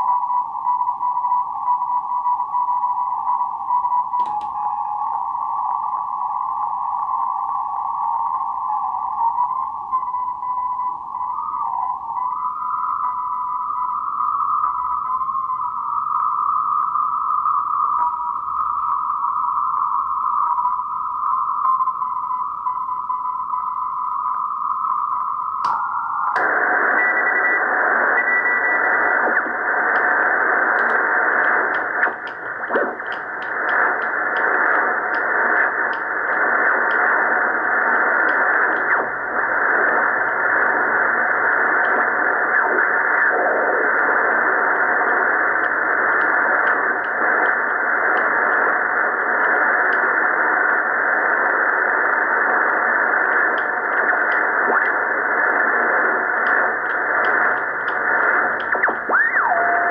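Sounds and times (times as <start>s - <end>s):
radio static hiss: 23.8s - 59.9s.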